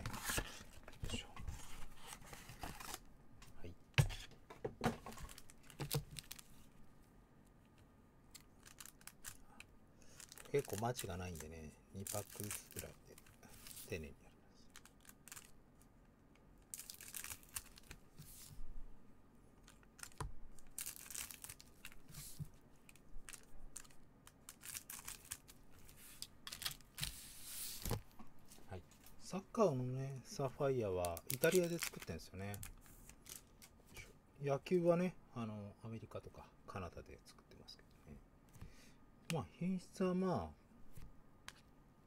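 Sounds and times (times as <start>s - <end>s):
foil packs crinkling: 10.1s - 11.4s, 19.7s - 22.1s, 23.2s - 25.6s, 31.1s - 33.5s.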